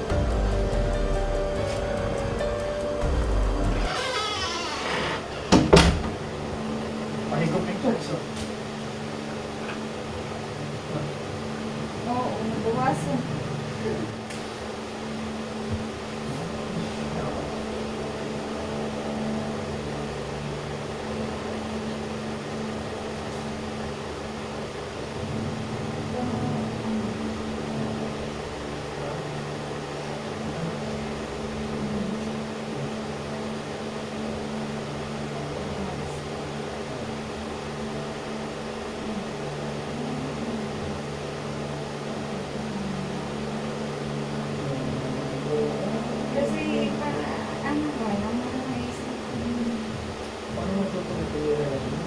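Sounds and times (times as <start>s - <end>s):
steady low mechanical hum: 0.0s - 52.0s.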